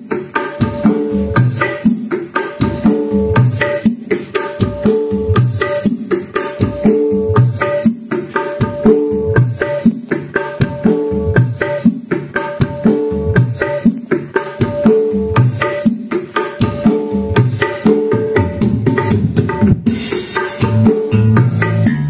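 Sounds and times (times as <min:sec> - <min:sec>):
loud music with strong drums: 0:00.0 - 0:22.0.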